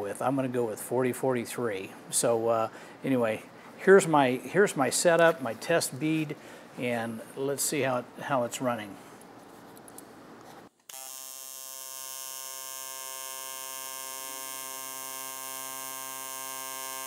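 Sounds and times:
faint room noise: 0:00.0 - 0:10.9
welding arc buzzing: 0:10.8 - 0:17.0.

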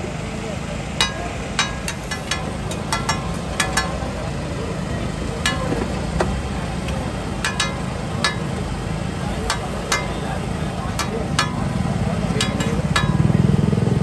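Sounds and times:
busy street-food stall rumble: 0:00.0 - 0:14.0
metal spatula clinking on griddle: 0:01.0 - 0:04.3, 0:05.4 - 0:06.3, 0:06.9 - 0:13.4.

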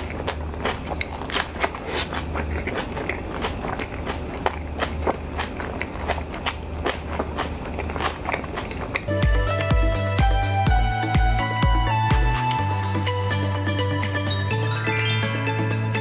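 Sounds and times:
chewing crunchy cabbage: 0:00.0 - 0:09.8.

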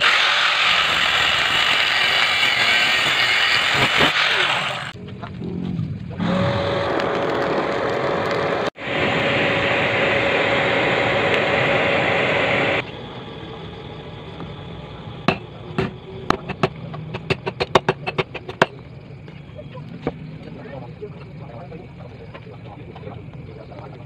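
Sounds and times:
blown forge roaring: 0:00.0 - 0:19.0.

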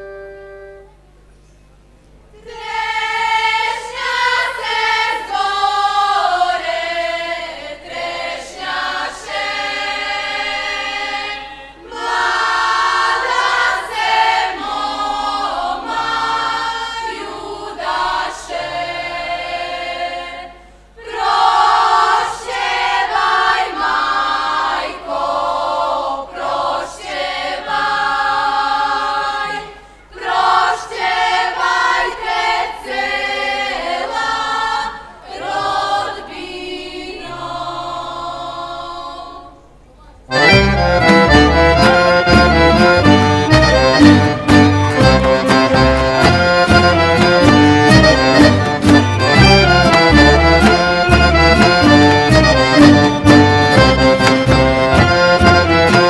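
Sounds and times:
accordion folk band: 0:00.0 - 0:01.1, 0:40.3 - 0:56.0
women singing folk song: 0:02.4 - 0:39.7.

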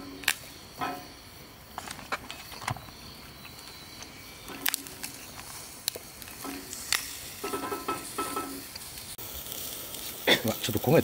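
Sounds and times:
fire pops: 0:00.0 - 0:11.0
wood fire crackling: 0:00.0 - 0:11.0
food sizzling on griddle: 0:02.4 - 0:11.0.

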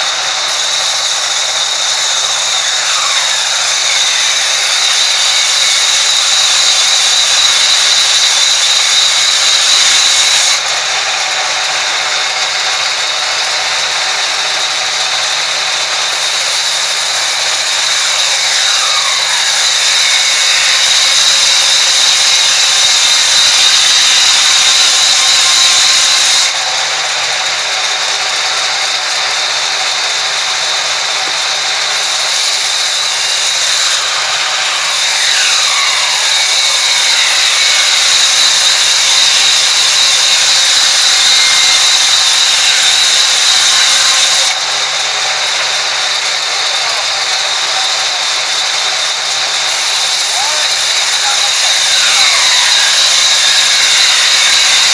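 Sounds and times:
band saw ripping timber: 0:00.0 - 0:54.9.

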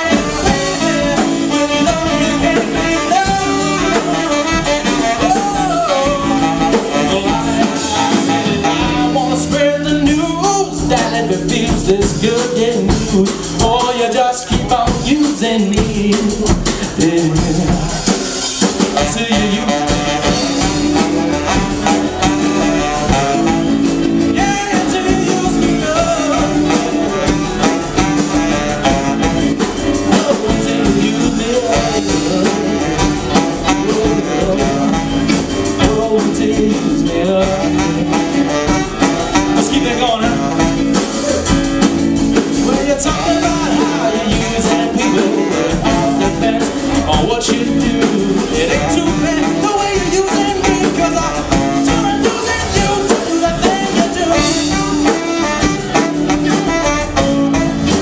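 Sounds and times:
electric guitar: 0:00.0 - 0:58.0
man singing: 0:00.0 - 0:58.0
saxophone: 0:00.0 - 0:58.0.

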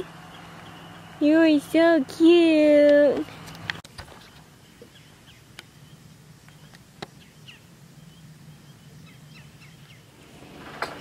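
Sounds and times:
low background hum: 0:00.0 - 0:11.0
bird chirps: 0:00.1 - 0:01.2, 0:04.2 - 0:10.2.

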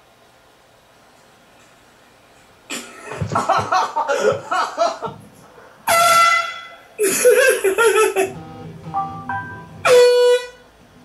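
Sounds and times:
air horn blast: 0:05.9 - 0:06.8, 0:08.3 - 0:10.8.

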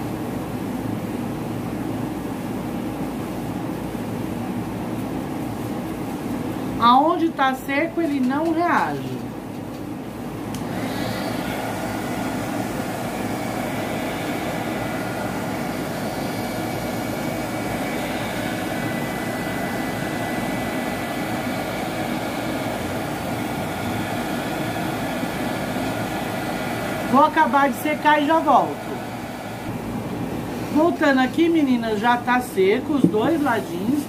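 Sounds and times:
heat gun blowing air: 0:10.5 - 0:29.7.

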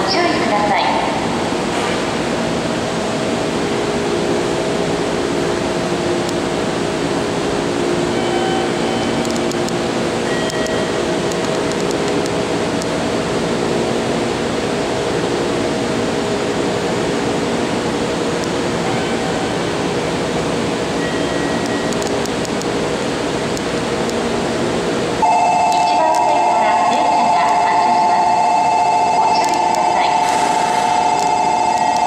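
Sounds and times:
train equipment hum and whir: 0:00.0 - 0:32.0.

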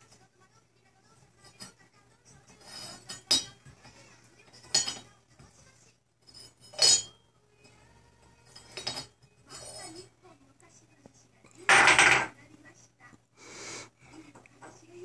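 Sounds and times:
porcelain teapot lid clinking: 0:06.7 - 0:07.1.

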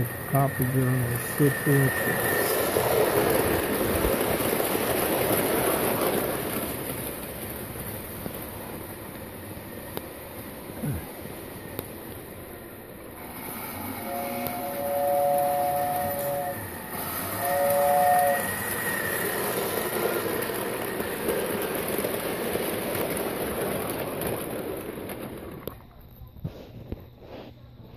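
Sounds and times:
toy train whistle: 0:00.0 - 0:03.4, 0:13.2 - 0:20.3
toy train rolling on metal track: 0:00.0 - 0:10.7, 0:11.3 - 0:26.0.

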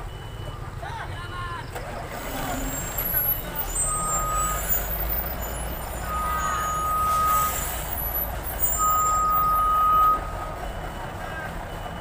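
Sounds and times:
truck engine rumble: 0:00.0 - 0:12.0
truck warning beeps: 0:00.0 - 0:12.0.

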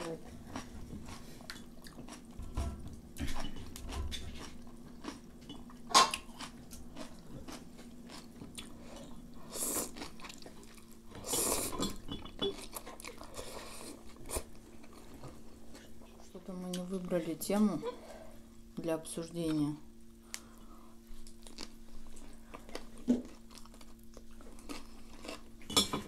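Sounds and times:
faint steady hum: 0:00.0 - 0:26.0
wet chewing: 0:00.1 - 0:02.4, 0:03.2 - 0:11.8.

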